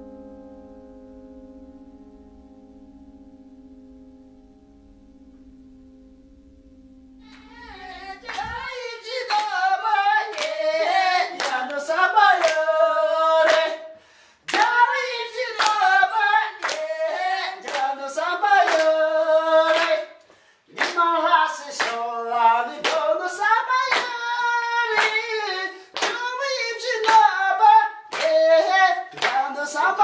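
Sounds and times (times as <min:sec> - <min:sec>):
steady held musical tone: 0:00.0 - 0:20.0
man singing loudly: 0:07.3 - 0:30.0.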